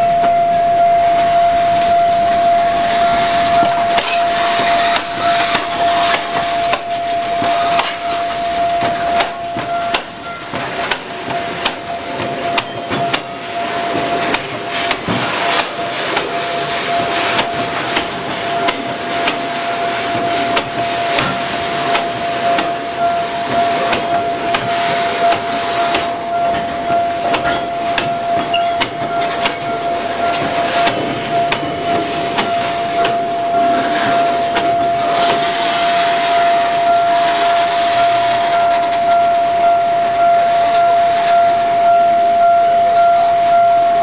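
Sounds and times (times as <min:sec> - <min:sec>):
thin high whine: 0:00.0 - 0:44.0
train rolling on rails: 0:00.0 - 0:44.0
metallic clanks and knocks: 0:25.3 - 0:35.5.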